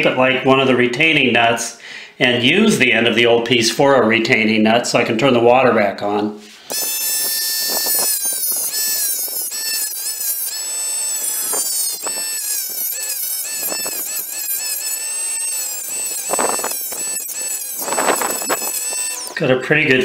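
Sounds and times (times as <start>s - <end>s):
rotary tool cutting plastic: 6.7s - 19.4s.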